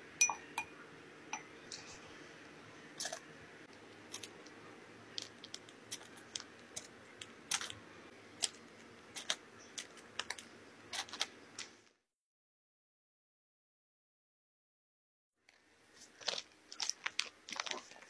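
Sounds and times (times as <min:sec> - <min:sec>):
faint room hum: 0:00.0 - 0:12.0, 0:15.4 - 0:18.0
piping bag being squeezed: 0:05.1 - 0:07.8, 0:16.0 - 0:18.0.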